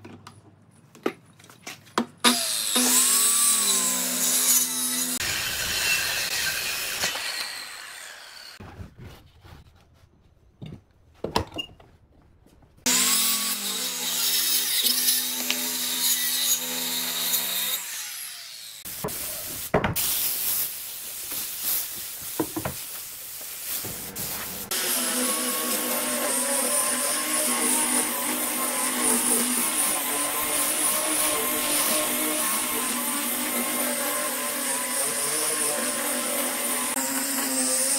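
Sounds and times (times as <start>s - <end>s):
circular saw cutting wood: 2.2s - 8.6s, 12.9s - 18.9s, 24.6s - 37.9s
angle grinder sanding wood: 2.3s - 8.6s, 12.9s - 19.7s, 21.2s - 37.9s.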